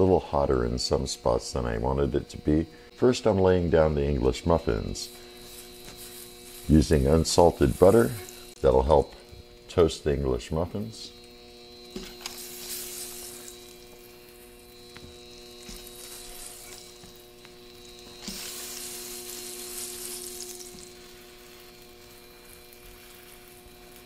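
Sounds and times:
faint steady hum: 0.0s - 24.0s
butter sizzling on griddle: 4.9s - 24.0s.

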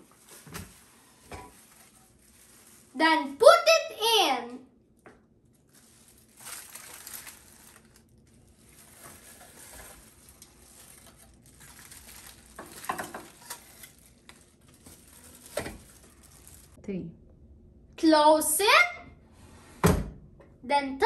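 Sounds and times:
plastic glove and foil rustling: 0.0s - 4.2s, 4.9s - 16.8s.

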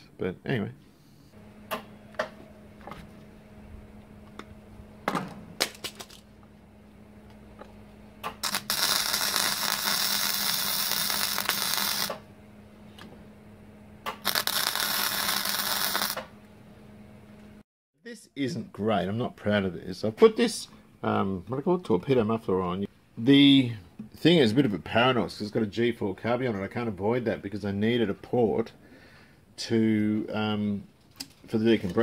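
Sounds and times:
steady low hum: 0.0s - 17.6s
arc welding crackling hiss: 8.4s - 12.2s, 14.2s - 16.3s.

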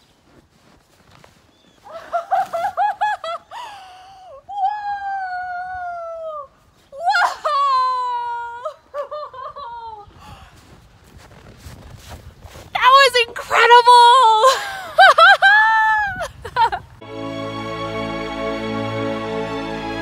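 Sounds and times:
woman laughing: 1.8s - 4.4s, 7.0s - 10.1s, 14.3s - 16.9s
woman exclaiming: 4.5s - 8.8s, 12.8s - 16.3s
woman crying out: 4.5s - 10.0s.

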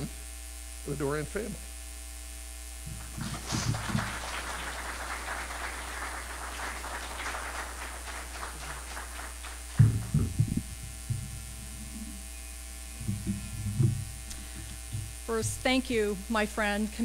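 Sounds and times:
knocks on microphone: 2.9s - 4.1s, 9.7s - 11.5s, 13.0s - 15.6s
audience applause: 2.9s - 12.1s
public address hum: 2.9s - 17.0s.

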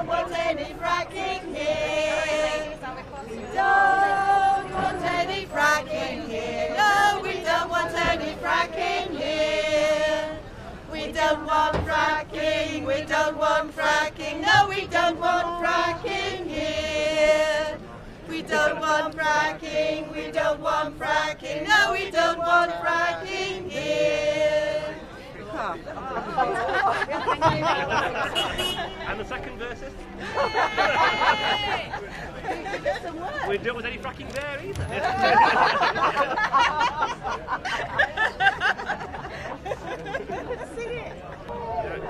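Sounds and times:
group of women singing unaccompanied: 0.0s - 25.2s, 26.0s - 28.2s.

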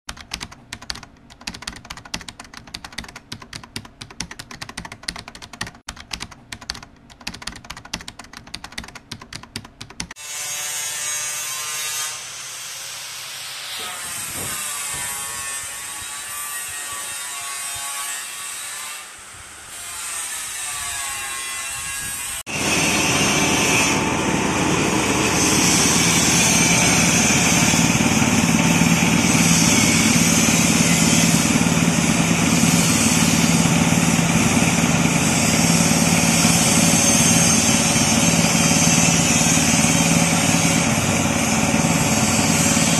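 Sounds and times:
keyboard typing clicks: 0.1s - 10.1s
grinding mill whining: 22.5s - 42.9s.

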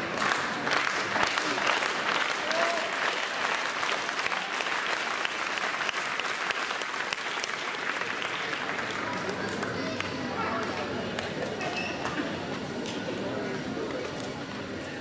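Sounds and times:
crowd applauding: 0.0s - 11.3s.

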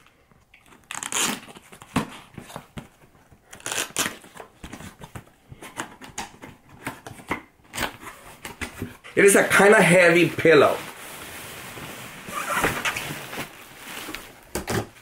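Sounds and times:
cardboard box tape tearing: 0.7s - 2.3s, 3.5s - 4.5s.

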